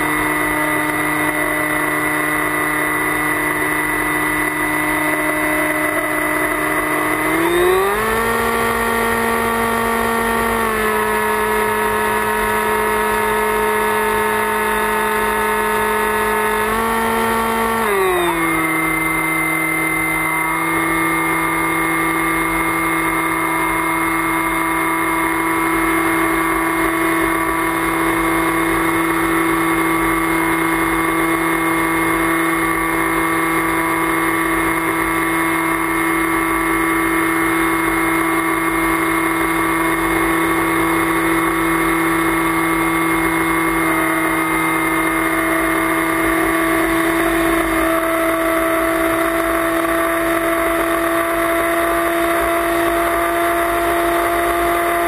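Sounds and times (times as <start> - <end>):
motor and propeller whine: 0.0 - 55.0.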